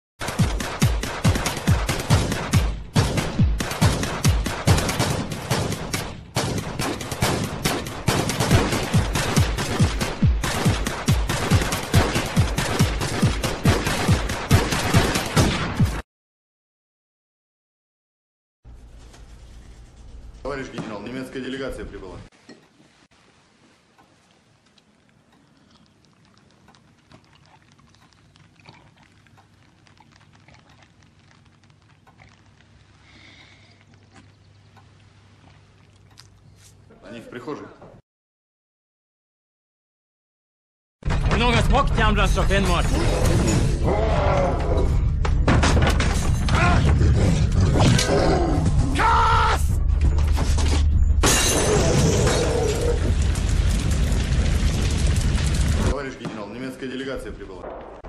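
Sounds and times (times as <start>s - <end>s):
swallowing clicks: 24.6s - 36.8s
loud cries or screams: 48.8s - 49.7s.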